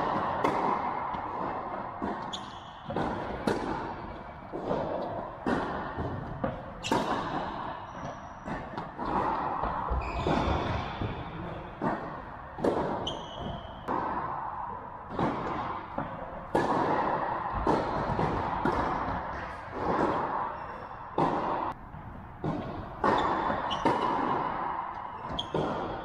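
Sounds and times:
tennis balls struck by rackets: 0:00.0 - 0:26.0
shoes squeaking on court: 0:02.2 - 0:02.9, 0:09.9 - 0:11.0, 0:13.0 - 0:13.8, 0:25.2 - 0:26.0.

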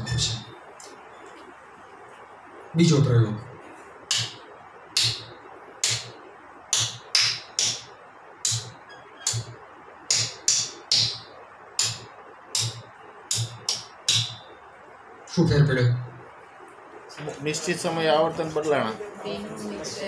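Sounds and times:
hand claps: 0:04.1 - 0:04.4, 0:05.0 - 0:05.2, 0:05.8 - 0:06.1, 0:06.7 - 0:08.7, 0:10.1 - 0:11.2, 0:11.8 - 0:14.4.

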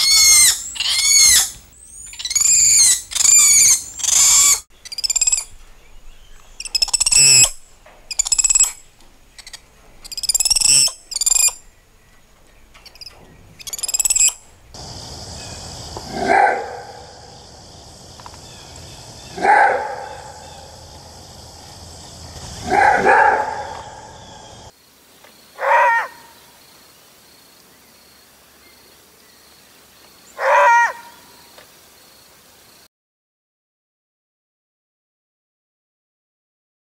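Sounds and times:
monkey high-pitched calls: 0:00.0 - 0:05.6, 0:06.6 - 0:08.8, 0:09.4 - 0:11.6, 0:12.8 - 0:14.4, 0:18.4 - 0:21.2, 0:22.0 - 0:24.7, 0:25.6 - 0:26.3, 0:30.4 - 0:31.3
wolf roar-barks: 0:16.0 - 0:17.5, 0:19.2 - 0:21.2, 0:22.3 - 0:24.7, 0:30.4 - 0:31.1.

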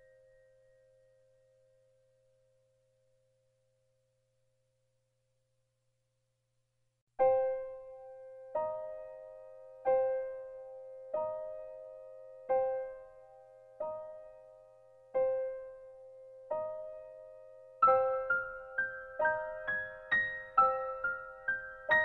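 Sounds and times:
slow piano music: 0:07.2 - 0:22.0.

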